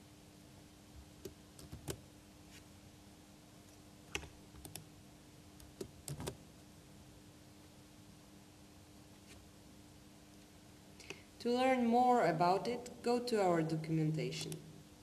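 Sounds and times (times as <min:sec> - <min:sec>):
faint steady hum: 0:00.0 - 0:15.0
keyboard keystrokes: 0:01.2 - 0:02.0, 0:04.1 - 0:04.8, 0:05.6 - 0:06.4.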